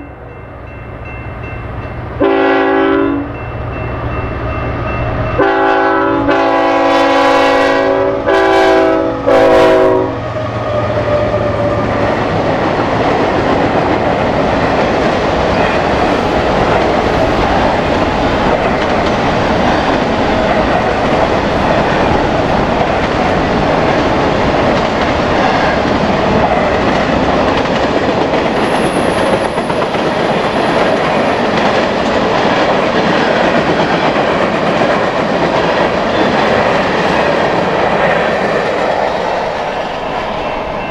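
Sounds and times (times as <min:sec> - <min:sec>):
train wheels rumbling on rails: 0:00.2 - 0:40.9
train horn blasts: 0:02.2 - 0:03.4, 0:05.4 - 0:10.9.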